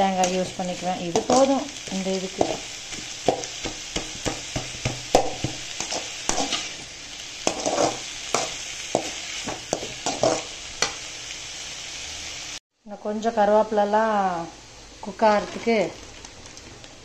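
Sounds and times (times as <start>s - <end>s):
frying sizzle: 0.0s - 17.0s
spatula scraping metal pan: 4.2s - 6.8s, 7.4s - 10.5s.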